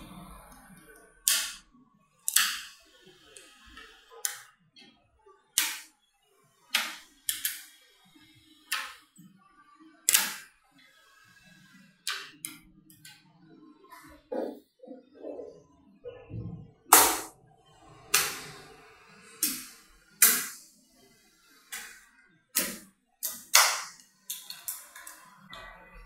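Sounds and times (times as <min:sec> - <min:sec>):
magnetic balls snapping together: 0:01.3 - 0:01.6, 0:02.3 - 0:02.8, 0:05.6 - 0:05.9, 0:06.8 - 0:07.7, 0:10.1 - 0:10.5, 0:22.6 - 0:25.2.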